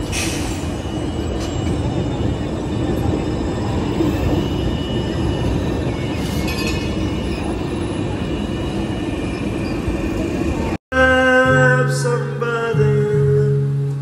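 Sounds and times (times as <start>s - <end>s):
tram wheels rumbling on rails: 0.0s - 10.8s.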